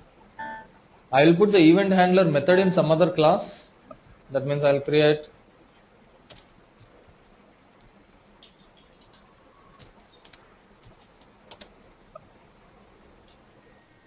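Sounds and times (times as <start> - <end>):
keyboard and mouse clicks: 6.3 - 12.3.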